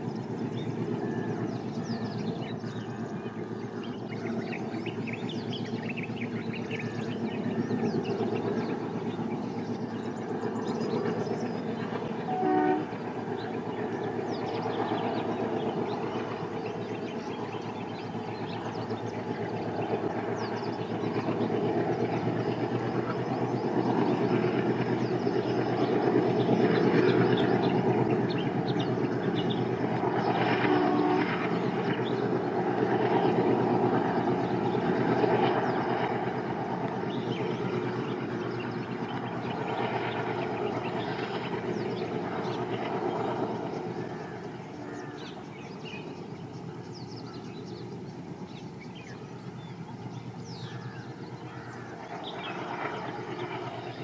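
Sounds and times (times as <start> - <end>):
diesel locomotive engine drone: 0.0 - 54.0
locomotive horn toot: 12.2 - 13.0, 30.6 - 31.5.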